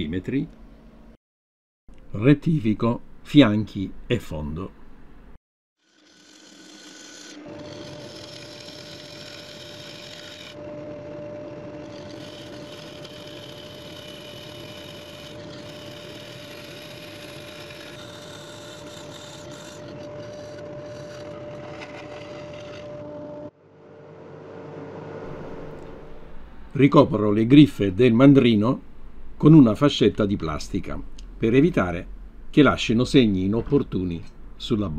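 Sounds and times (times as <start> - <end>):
turning tool scraping wood: 5.8 - 23.4
wood lathe whining: 5.8 - 23.5.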